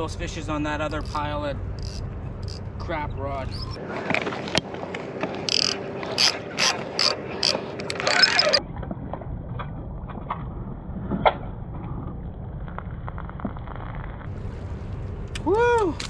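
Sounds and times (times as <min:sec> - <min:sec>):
fishing reel ratcheting: 0:01.8 - 0:02.6, 0:05.4 - 0:08.6.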